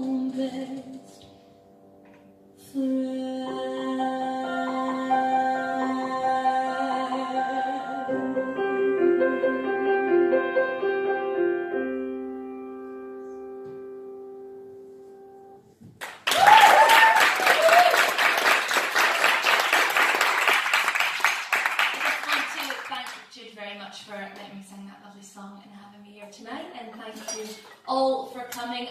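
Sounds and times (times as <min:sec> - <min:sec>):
piano chords: 0:00.0 - 0:15.8
audience applauding: 0:16.0 - 0:23.2.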